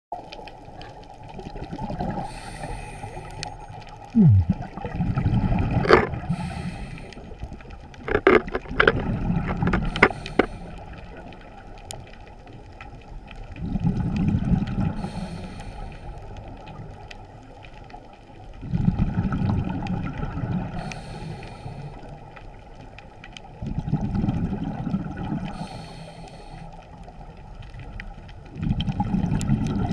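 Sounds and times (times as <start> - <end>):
regulator inhalation hiss: 2.3 - 3.4, 6.3 - 7.2, 9.8 - 10.8, 15.0 - 16.1, 20.8 - 22.0, 25.6 - 26.7
bubbling exhalation underwater: 4.1 - 6.6, 23.7 - 25.5, 28.6 - 29.9.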